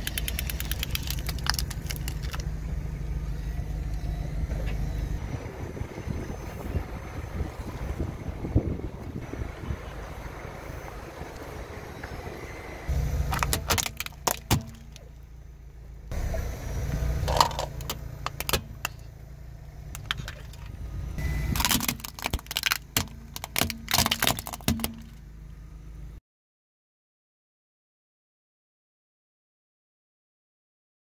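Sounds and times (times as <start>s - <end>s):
plastic toys cracking and snapping: 0.0s - 2.5s, 13.3s - 15.0s, 17.3s - 19.0s, 21.6s - 25.1s
car tyre rumbling on asphalt: 0.0s - 26.2s.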